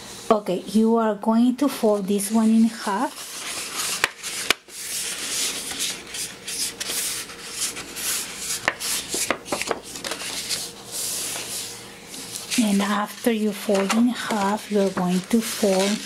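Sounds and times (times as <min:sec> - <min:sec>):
paper crackling: 0:02.3 - 0:16.0
palm sliding over card: 0:03.1 - 0:16.0.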